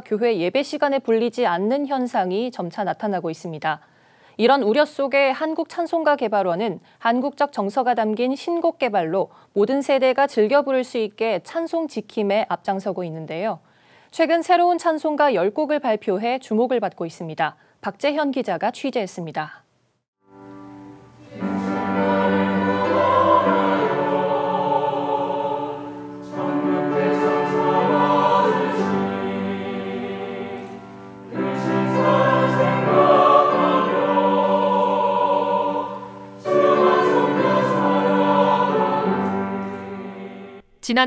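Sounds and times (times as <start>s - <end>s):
grand piano accompaniment: 20.3s - 40.6s
women's choir singing a hymn: 21.2s - 40.7s.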